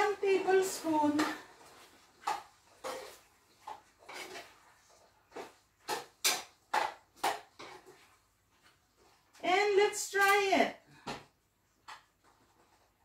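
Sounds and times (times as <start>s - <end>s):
utensil scraping a pot: 0.0s - 6.0s.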